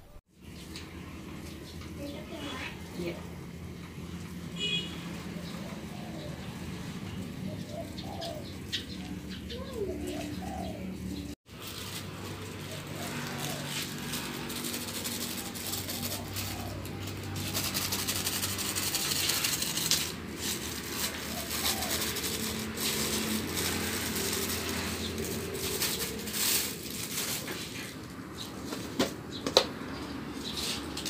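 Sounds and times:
plastic sachet crinkling: 11.5 - 27.6.

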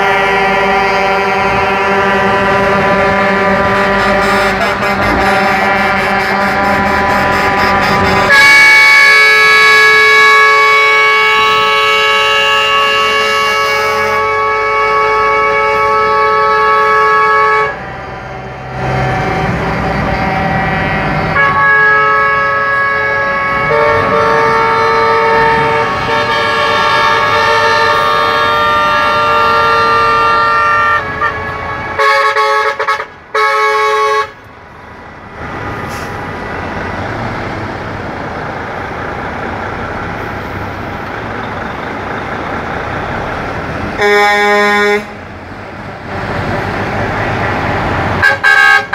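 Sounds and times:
truck air horns blasting: 0.0 - 34.5, 43.9 - 45.4, 46.4 - 48.9
diesel truck engines: 0.0 - 48.9
road noise: 0.0 - 48.9.

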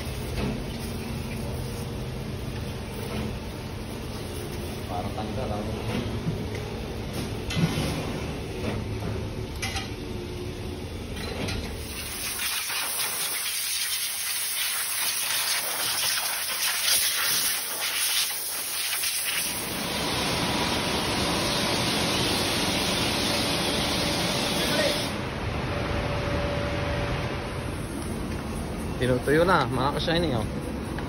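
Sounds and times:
pressure washer spraying water: 11.8 - 20.3.

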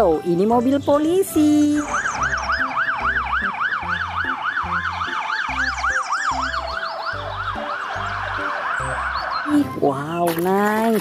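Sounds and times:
electronic police siren: 1.8 - 9.6.

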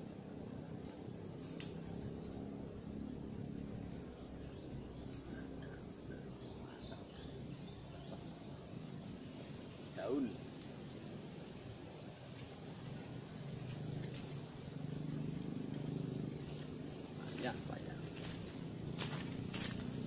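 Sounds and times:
faint bird chirps: 0.0 - 9.1, 9.7 - 11.0
insect trilling: 0.0 - 20.0.

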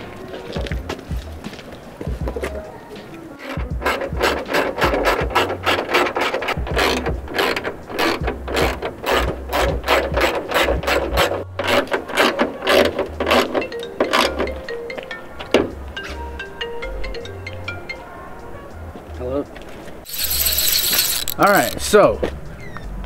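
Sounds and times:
hand ratchet clicking: 3.4 - 14.6, 20.1 - 21.9.

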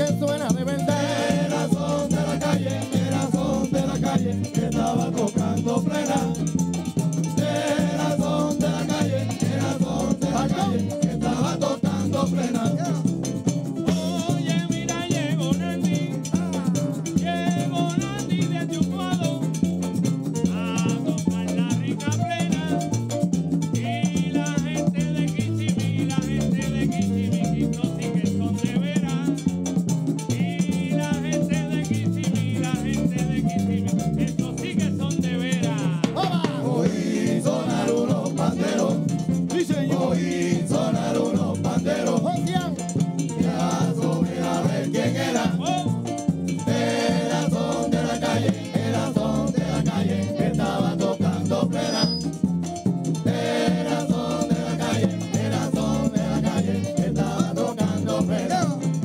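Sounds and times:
men singing into microphones: 0.0 - 19.7, 20.4 - 23.1, 23.7 - 29.6, 30.2 - 52.4, 53.1 - 59.0
frame drums beating: 0.0 - 59.0
guiro scraping: 51.8 - 52.5.

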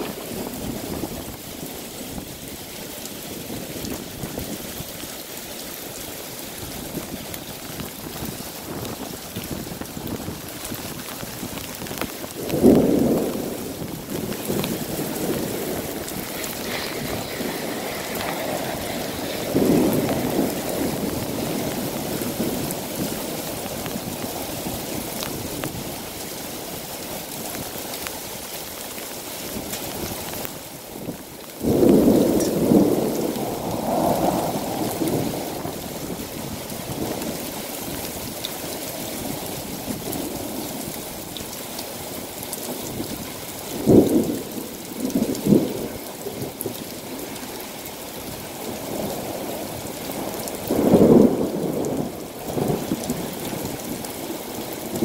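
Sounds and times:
heavy rain pouring: 0.0 - 55.0
thunder rolling: 12.3 - 23.2, 31.6 - 36.2, 50.7 - 53.9.

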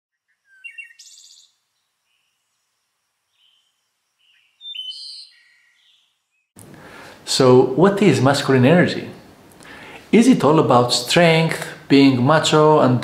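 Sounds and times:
birds chirping and trilling: 0.1 - 6.6.

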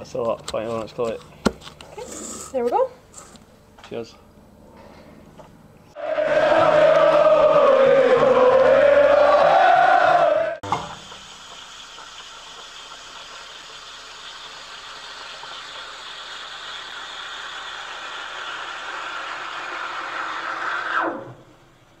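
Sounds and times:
coffee machine whirring: 6.0 - 22.0.

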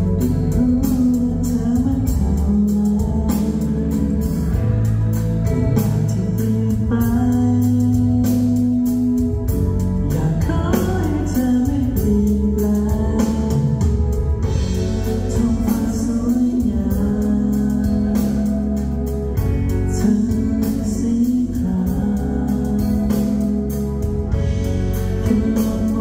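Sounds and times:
pop backing music with beat: 0.0 - 26.0
men singing into microphones: 15.1 - 18.8, 19.9 - 23.6, 25.2 - 26.0.

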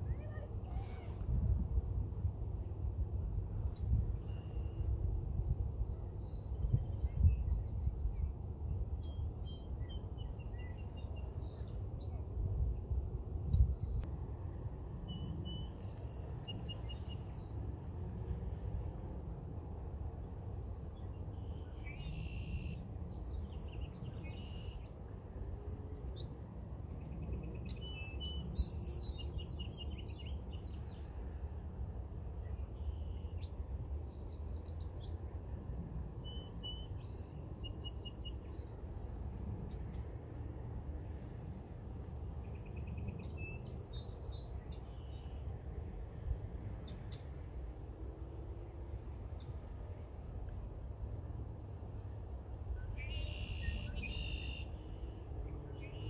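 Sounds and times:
songbirds singing: 3.7 - 12.7, 15.0 - 17.7, 20.8 - 25.3, 26.1 - 31.4, 36.0 - 40.4, 42.1 - 45.7, 52.6 - 56.0
insects chirping: 14.4 - 45.6, 46.3 - 56.0.

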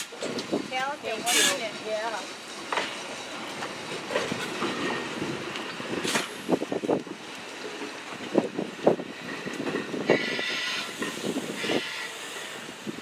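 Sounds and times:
train wheels clacking over rail joints: 0.0 - 12.7
high wheel squeal: 10.1 - 12.2.

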